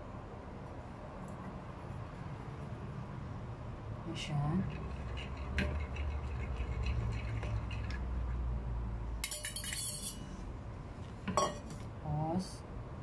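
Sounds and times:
fork stirring egg in a bowl: 0:04.6 - 0:08.4, 0:09.2 - 0:10.3
fork clinking against bowl: 0:09.2 - 0:10.3
metallic scrape: 0:09.2 - 0:10.4.

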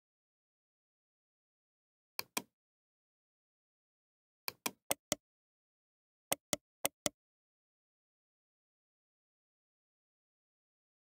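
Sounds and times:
computer mouse button clicks: 0:04.5 - 0:05.2, 0:06.3 - 0:07.2.

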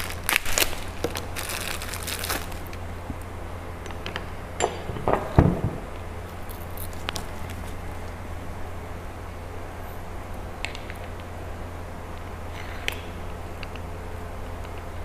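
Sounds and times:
plastic packaging crinkling: 0:00.0 - 0:02.9, 0:06.3 - 0:08.2
steady low hum: 0:00.0 - 0:15.0
thump: 0:04.9 - 0:05.9.

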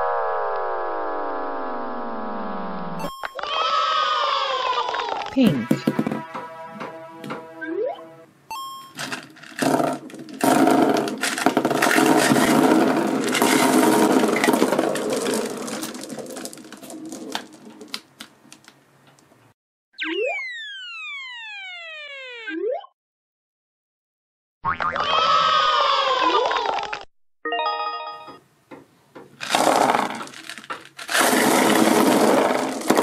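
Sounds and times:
plastic balls clattering on table: 0:04.9 - 0:06.4, 0:08.9 - 0:19.3, 0:29.2 - 0:33.0
cartoon falling whistle glides: 0:20.0 - 0:22.8.

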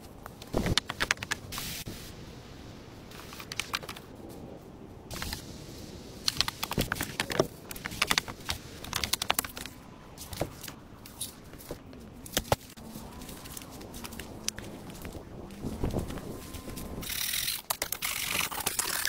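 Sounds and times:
wooden sticks clacking and snapping: 0:00.0 - 0:01.5, 0:03.1 - 0:04.1, 0:06.2 - 0:15.2, 0:17.0 - 0:19.0.

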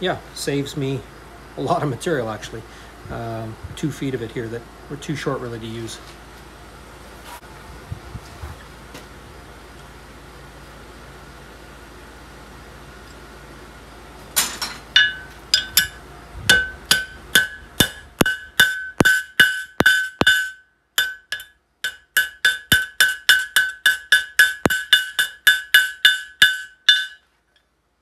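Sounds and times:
hammer striking hot metal on anvil: 0:14.4 - 0:27.2.

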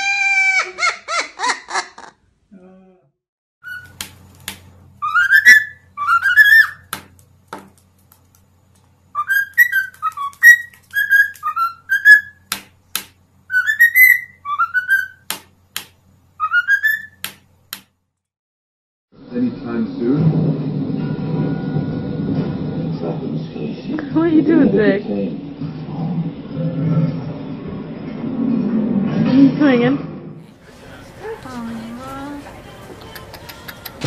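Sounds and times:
cockatiel whistling: 0:03.6 - 0:04.0, 0:05.0 - 0:06.9, 0:09.1 - 0:12.5, 0:13.5 - 0:15.3, 0:16.4 - 0:17.2.

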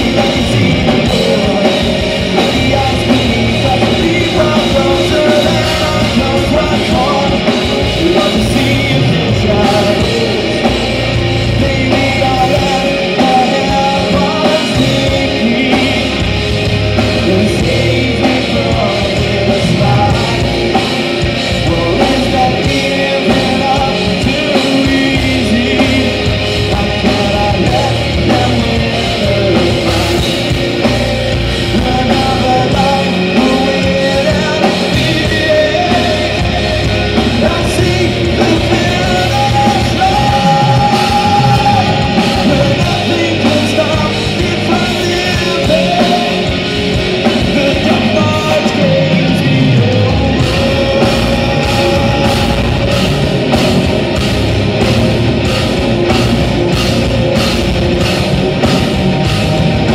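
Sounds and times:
heavy metal band playing live: 0:00.0 - 0:59.9
man singing: 0:00.0 - 0:59.9.

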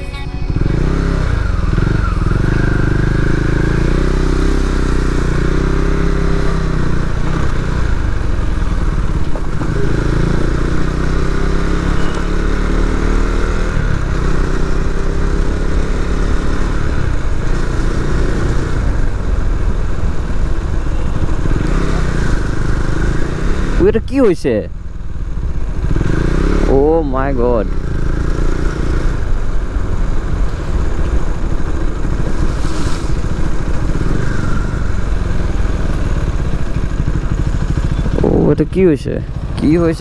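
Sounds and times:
motorcycle engine revving: 0:00.4 - 0:24.1, 0:24.8 - 0:40.0.

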